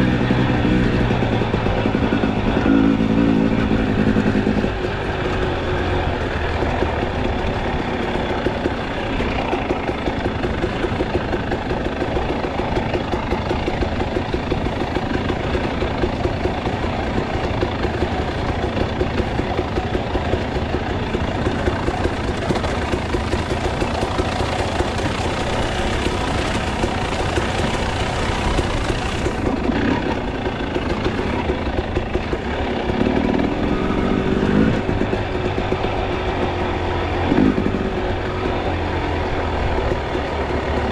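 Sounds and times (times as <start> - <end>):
dirt bike engine running: 0.0 - 40.9.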